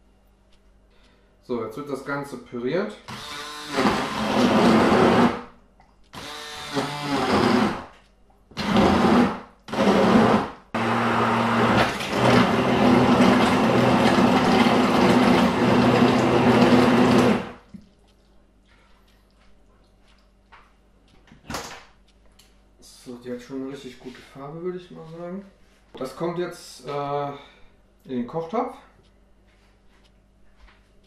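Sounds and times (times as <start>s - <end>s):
stick blender running: 3.1s - 5.5s, 6.1s - 7.9s, 8.5s - 17.6s.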